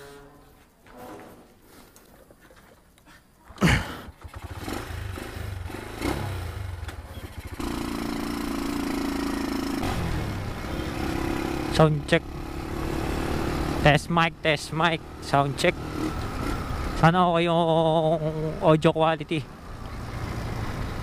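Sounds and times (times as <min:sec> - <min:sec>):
motorcycle engine pulling away: 0:03.5 - 0:14.3, 0:14.9 - 0:18.7, 0:19.5 - 0:21.0.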